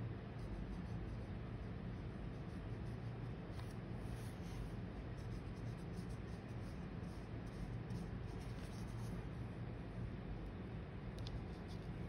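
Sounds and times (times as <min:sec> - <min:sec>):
steady low hum: 0:00.0 - 0:12.0
paintbrush strokes on paper: 0:00.3 - 0:10.0.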